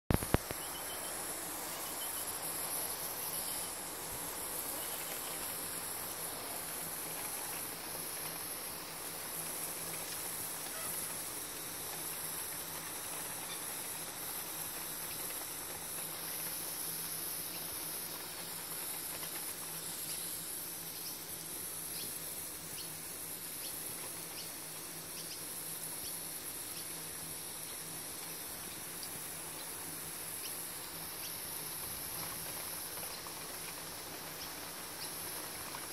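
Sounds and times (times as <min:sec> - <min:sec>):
garden hose spraying water: 0:00.1 - 0:35.9
high-pitched insect chorus: 0:00.1 - 0:35.9.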